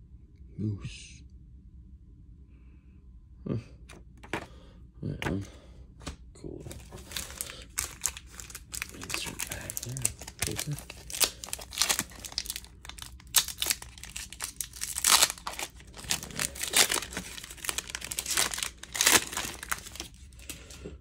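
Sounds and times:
card pack wrapping crinkling: 0:06.7 - 0:20.8.

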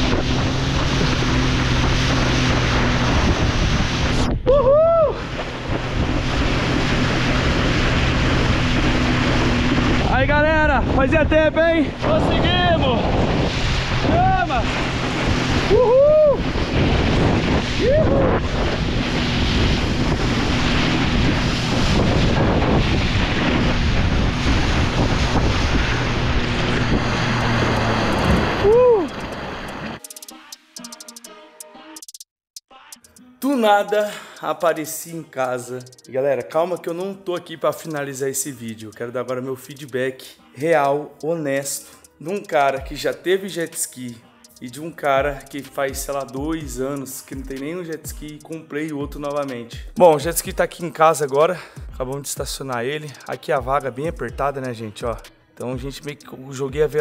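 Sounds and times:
jet ski engine running: 0:00.0 - 0:04.4, 0:05.1 - 0:30.1
rushing water: 0:00.0 - 0:10.5, 0:11.2 - 0:30.0
wind buffeting microphone: 0:00.0 - 0:30.0
person whooping: 0:04.4 - 0:05.3, 0:14.0 - 0:14.6, 0:15.6 - 0:16.5, 0:17.8 - 0:18.4, 0:28.6 - 0:29.2.

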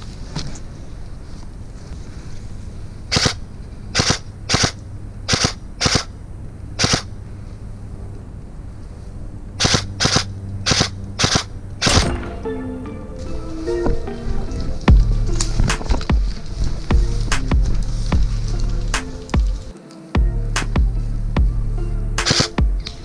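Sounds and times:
airsoft rifle shots: 0:03.1 - 0:06.1, 0:06.8 - 0:07.1, 0:09.6 - 0:12.6, 0:22.2 - 0:22.6.

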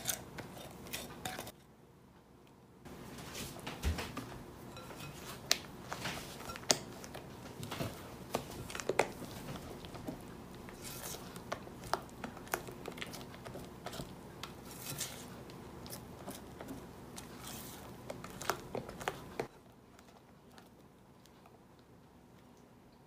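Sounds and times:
spatula scraping glass bowl: 0:00.0 - 0:01.5, 0:04.7 - 0:05.5, 0:10.7 - 0:11.4, 0:13.8 - 0:15.4.

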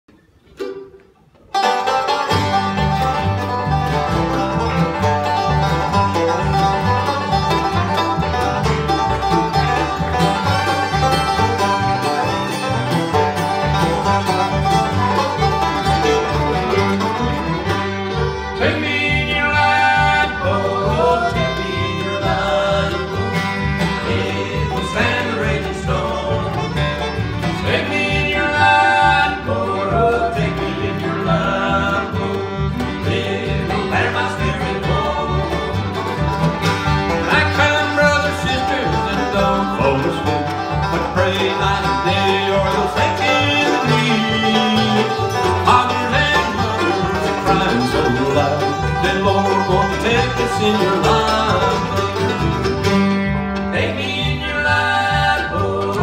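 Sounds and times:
bluegrass band playing: 0:00.1 - 0:56.0
people singing: 0:18.6 - 0:36.0, 0:37.2 - 0:52.0, 0:53.7 - 0:56.0.

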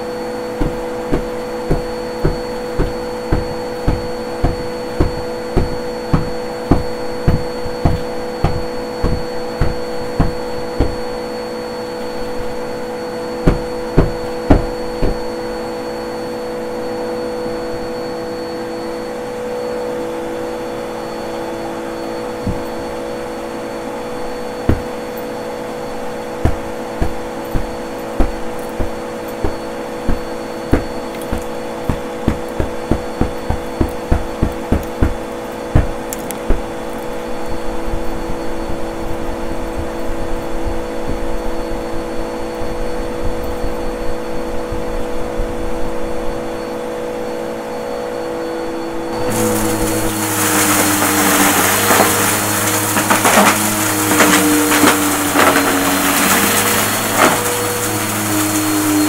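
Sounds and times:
vacuum cleaner motor humming: 0:00.0 - 0:59.0.

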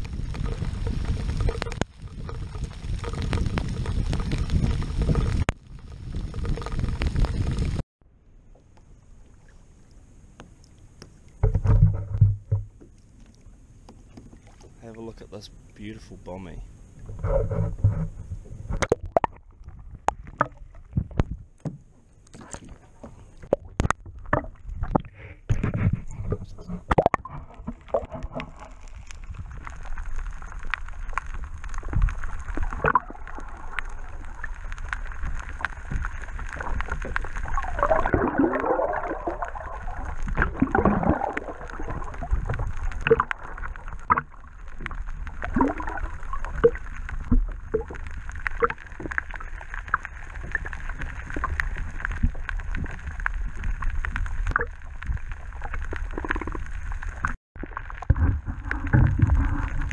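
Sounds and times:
muffled underwater water gurgling: 0:00.0 - 0:07.8, 0:22.3 - 0:59.9.

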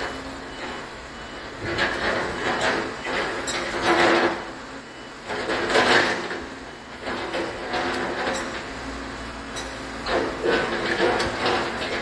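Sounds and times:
excavator engine running: 0:00.0 - 0:12.0
excavator bucket scraping rubble: 0:10.0 - 0:12.0.

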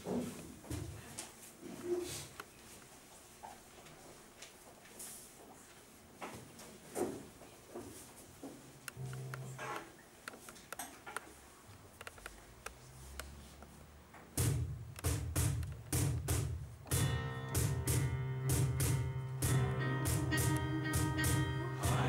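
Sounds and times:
cajon beat: 0:14.3 - 0:22.0
sustained chords: 0:16.9 - 0:22.0.

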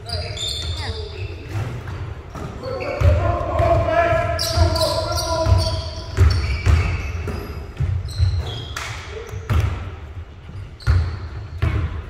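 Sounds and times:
basketball bouncing on hardwood: 0:05.4 - 0:08.5.

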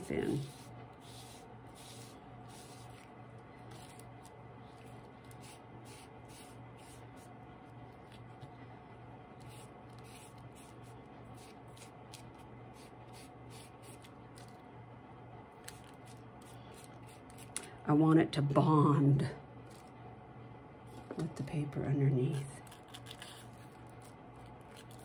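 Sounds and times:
foam brush swishing on wet paper: 0:00.0 - 0:03.1, 0:04.7 - 0:07.3, 0:09.4 - 0:14.5
low steady hum: 0:00.0 - 0:25.0.

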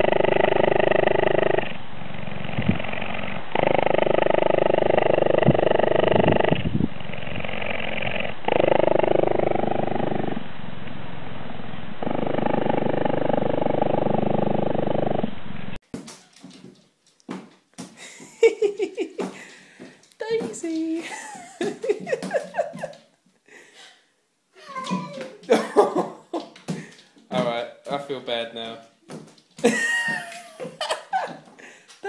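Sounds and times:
cheetah purring: 0:00.0 - 0:10.5, 0:12.0 - 0:15.3.

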